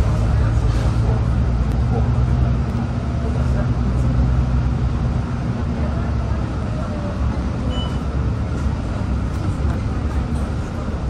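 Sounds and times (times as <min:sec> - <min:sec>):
bus engine drone: 0:00.0 - 0:11.0
road noise: 0:00.0 - 0:11.0.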